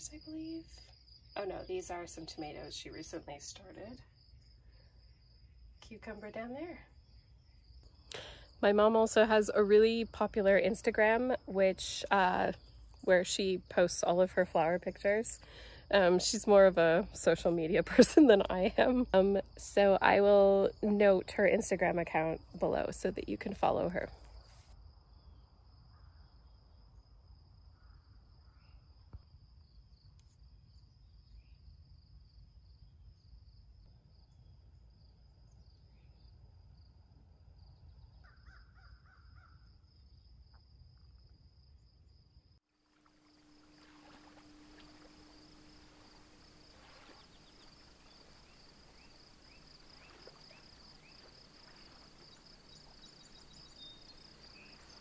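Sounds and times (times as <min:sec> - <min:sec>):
high insect trill: 0:00.0 - 0:55.0
distant bird calls: 0:42.9 - 0:55.0.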